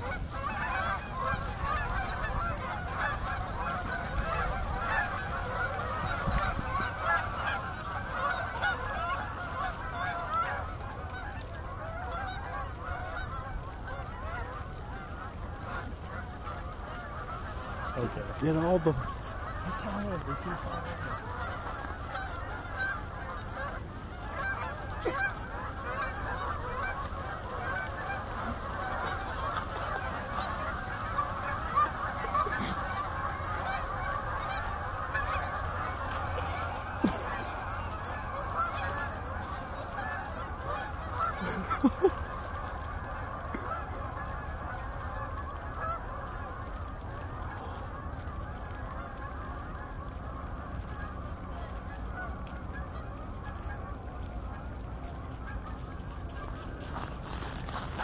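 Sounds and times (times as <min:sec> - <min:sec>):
flock of geese honking: 0:00.0 - 0:58.0.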